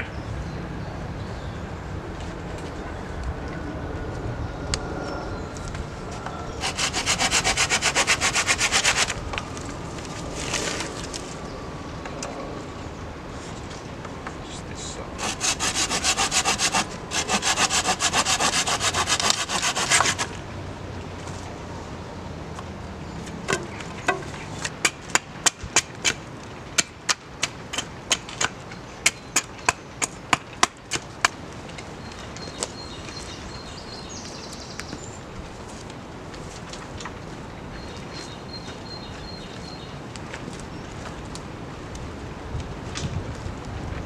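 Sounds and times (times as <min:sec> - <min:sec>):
hand saw cutting wood: 0:06.6 - 0:09.2, 0:15.2 - 0:20.4.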